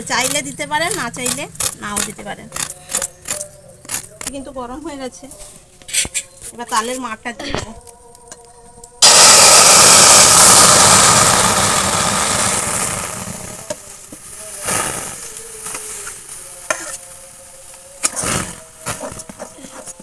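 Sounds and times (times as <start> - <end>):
fruit pulp sizzling in hot pan: 9.0 - 16.4.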